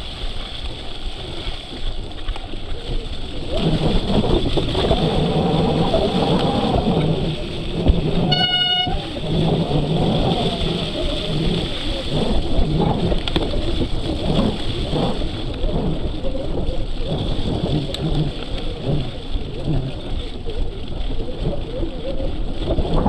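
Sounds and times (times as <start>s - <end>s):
wind and tyre noise: 0.0s - 23.0s.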